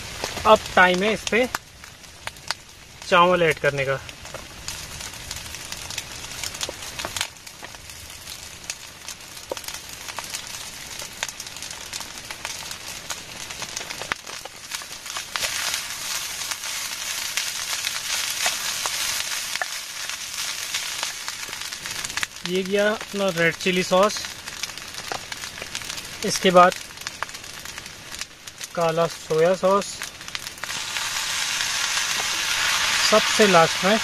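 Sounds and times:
rice frying in oil: 0:00.0 - 0:34.0.

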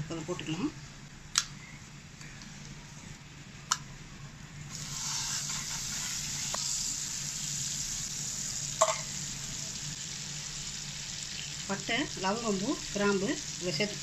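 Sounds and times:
fat sizzling in frying pan: 0:04.7 - 0:14.0.

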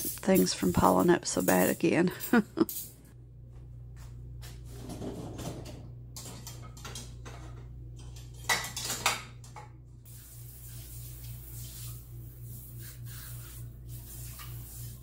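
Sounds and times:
dishes and cutlery clattering: 0:04.8 - 0:09.6.

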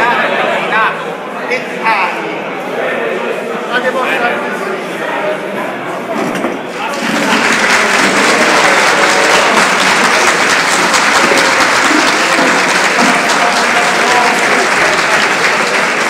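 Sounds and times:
people clapping: 0:06.3 - 0:16.0.

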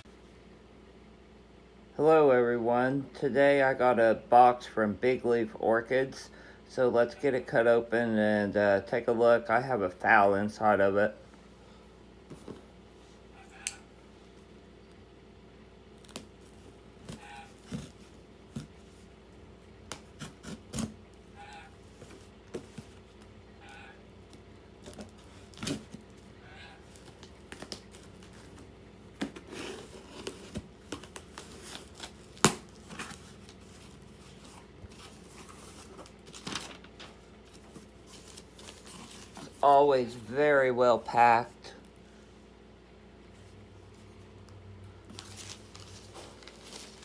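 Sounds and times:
tape and cardboard tearing: 0:16.0 - 0:18.7, 0:19.9 - 0:22.9, 0:29.2 - 0:33.2.

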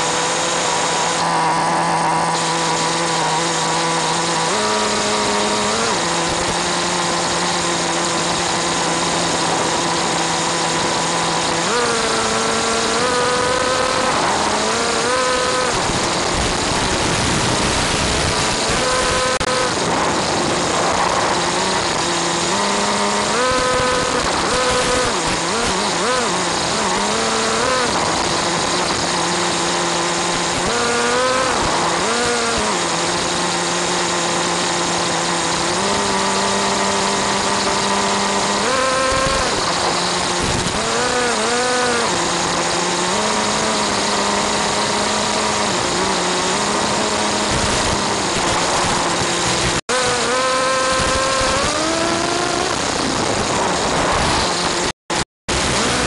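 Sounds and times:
small rc car engine revving: 0:00.0 - 0:56.0.

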